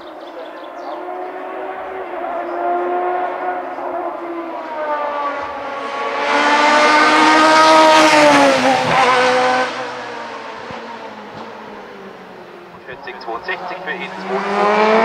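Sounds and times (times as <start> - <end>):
race car engine passing by: 0.6 - 15.0.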